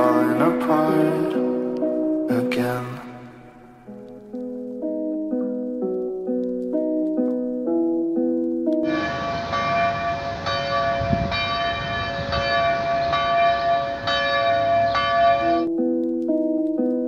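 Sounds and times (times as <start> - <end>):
church bell ringing: 0.0 - 4.0, 8.8 - 15.7
outdoor background noise: 0.0 - 17.0
soft instrumental music: 0.0 - 17.0.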